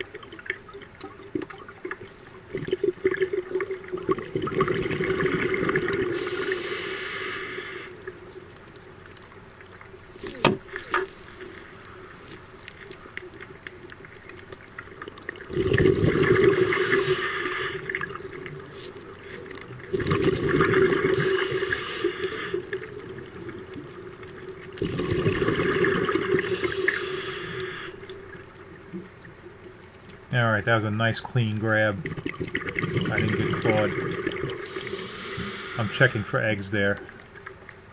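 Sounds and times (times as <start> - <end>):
exhaust bubbles rushing underwater: 0.0 - 6.8, 15.0 - 27.3, 32.0 - 36.2
faint steady hum: 0.0 - 37.9.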